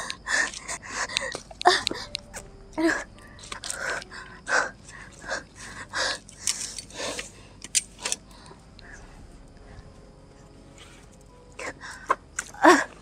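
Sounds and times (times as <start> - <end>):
woman breathing hard: 2.8 - 10.0.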